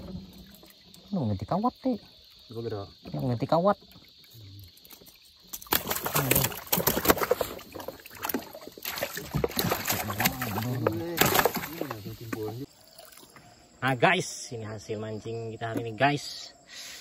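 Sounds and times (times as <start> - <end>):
knocking and clatter on wooden boat: 5.6 - 12.6.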